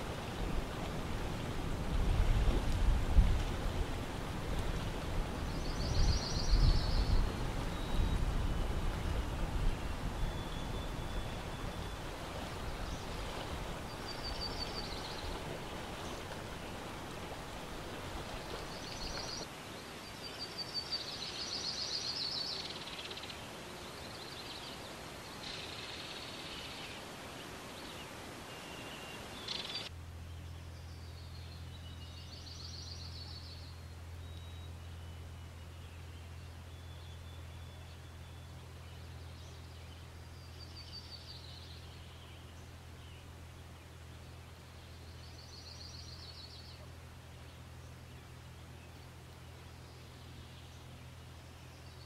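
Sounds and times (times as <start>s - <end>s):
low steady hum: 0.0s - 19.5s, 29.8s - 52.0s
outdoor ambience hiss: 0.0s - 52.0s
songbirds trilling: 4.2s - 19.5s.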